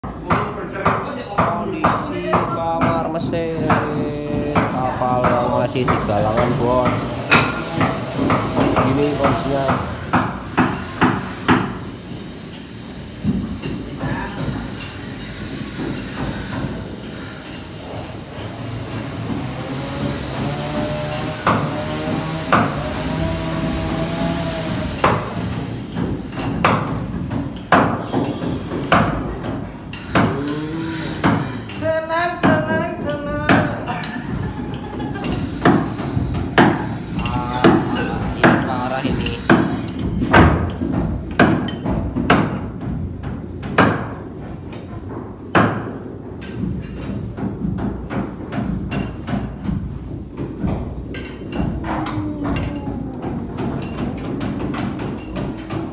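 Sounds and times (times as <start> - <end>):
hammer blows on wood: 0.0 - 12.3, 13.2 - 44.5.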